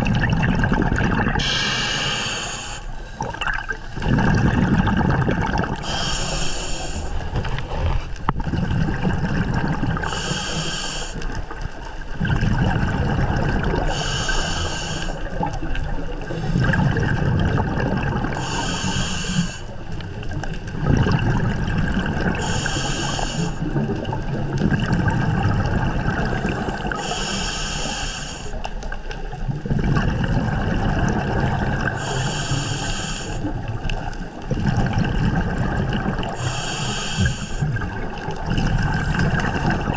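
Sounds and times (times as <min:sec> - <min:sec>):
exhaled bubbles rumbling: 0:00.0 - 0:39.9
regulator inhale hiss: 0:01.4 - 0:03.3, 0:05.8 - 0:07.4, 0:10.0 - 0:11.4, 0:13.9 - 0:15.3, 0:16.3 - 0:17.0, 0:18.3 - 0:19.9, 0:22.4 - 0:23.7, 0:26.3 - 0:28.6, 0:31.9 - 0:33.5, 0:36.4 - 0:37.8.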